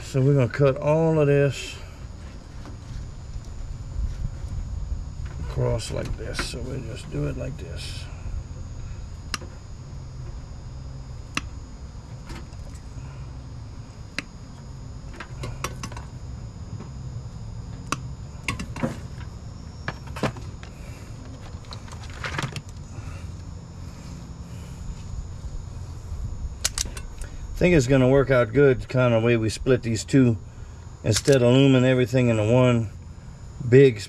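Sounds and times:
steady low hum: 0.0s - 34.0s
wire cutters snipping wires: 26.6s - 27.2s.

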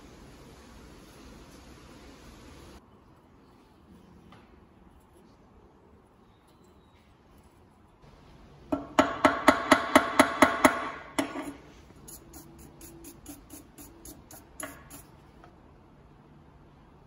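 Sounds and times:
stiff brush scrubbing metal: 11.3s - 15.2s.

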